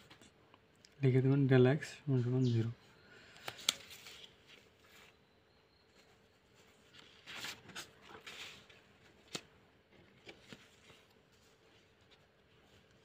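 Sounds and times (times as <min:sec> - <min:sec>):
paper sheets rustling: 0:03.3 - 0:05.2, 0:06.5 - 0:13.0.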